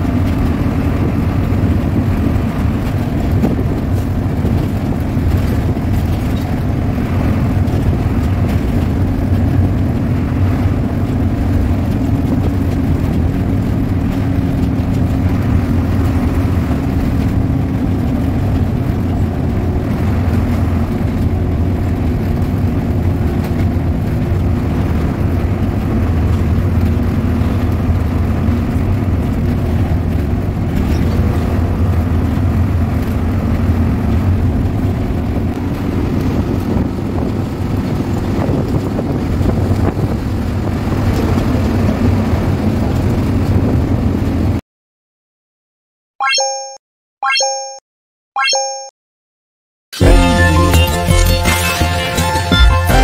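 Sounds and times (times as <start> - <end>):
coach diesel engine running: 0.0 - 44.6
road noise: 0.0 - 44.6.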